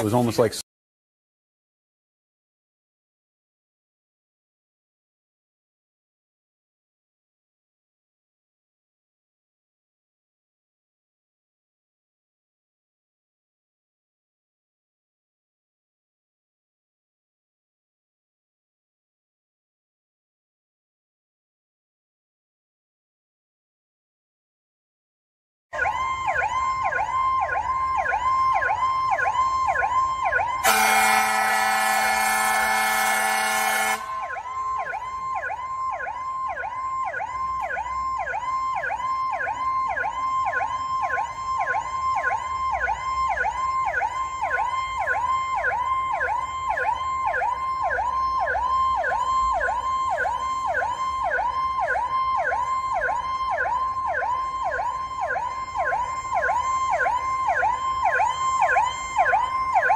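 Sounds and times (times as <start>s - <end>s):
siren yelping: 25.8s - 59.9s
air horn blast: 30.6s - 34.3s.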